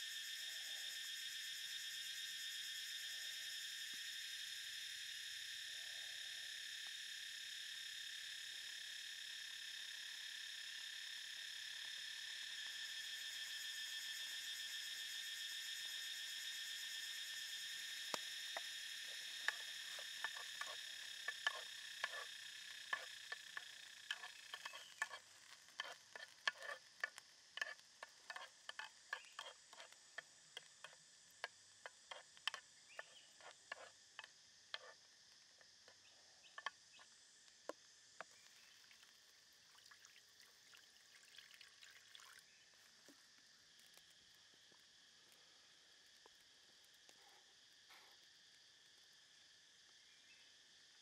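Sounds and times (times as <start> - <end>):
shallots and garlic sizzling in oil: 22.8 - 30.0.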